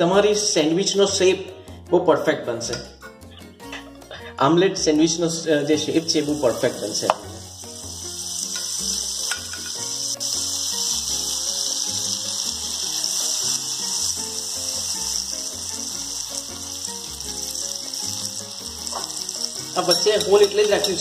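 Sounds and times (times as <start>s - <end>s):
butter sizzling in a frying pan: 5.6s - 21.0s.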